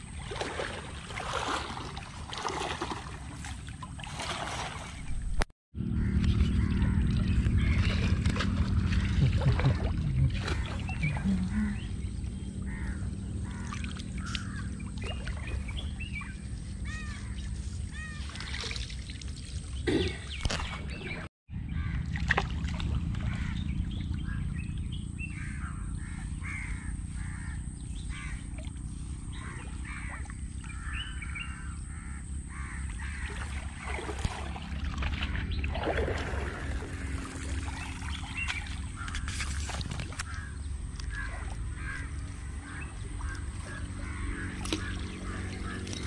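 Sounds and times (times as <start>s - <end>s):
water sloshing around legs: 0.0s - 5.4s, 7.0s - 21.1s, 25.4s - 46.0s
water splash: 0.0s - 5.5s, 7.0s - 11.4s, 17.9s - 21.0s, 22.0s - 23.5s, 33.0s - 40.4s
crows cawing: 12.7s - 14.7s, 25.3s - 28.5s, 29.3s - 33.5s, 40.2s - 46.0s.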